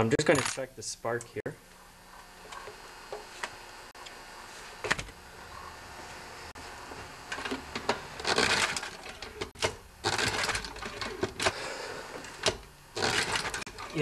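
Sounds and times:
engine cranking: 0:08.2 - 0:11.6, 0:12.2 - 0:14.0.

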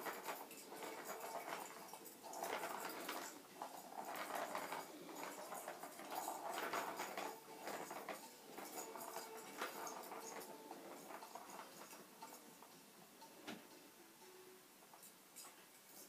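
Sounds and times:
plastic ball rolling and rattling: 0:00.0 - 0:12.7.

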